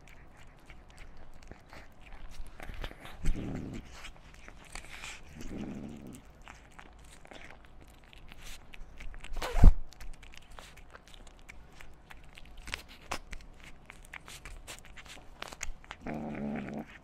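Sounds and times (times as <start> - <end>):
kitten chewing and licking: 0.0 - 17.0.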